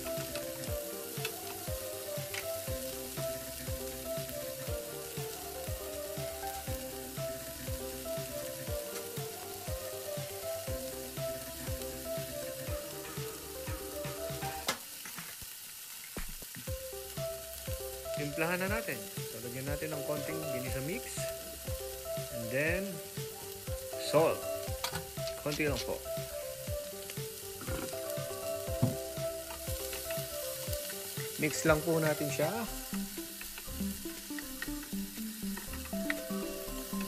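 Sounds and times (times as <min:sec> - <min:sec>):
background music with steady beat: 0:00.0 - 0:15.0, 0:16.2 - 0:37.0
food sizzling in frying pan: 0:00.0 - 0:37.0.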